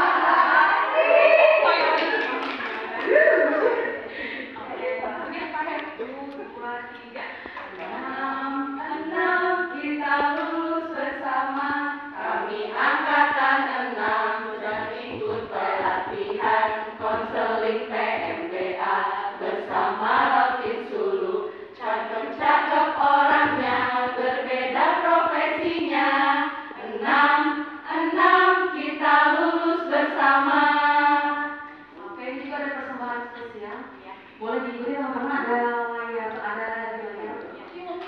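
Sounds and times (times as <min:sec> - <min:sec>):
group singing a cheer song: 0:00.0 - 0:04.6, 0:07.4 - 0:33.3.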